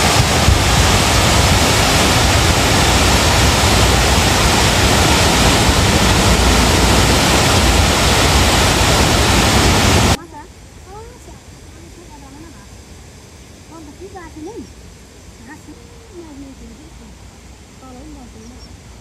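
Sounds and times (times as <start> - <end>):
water rushing over weir: 0.0 - 12.5.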